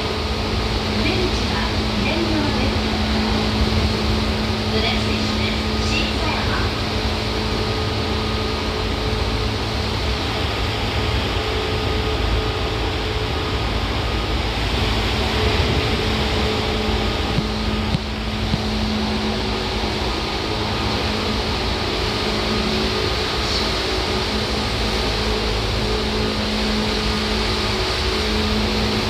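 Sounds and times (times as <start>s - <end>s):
train motor and gear hum: 0.0s - 29.0s
train wheels rumbling on rails: 0.0s - 29.0s.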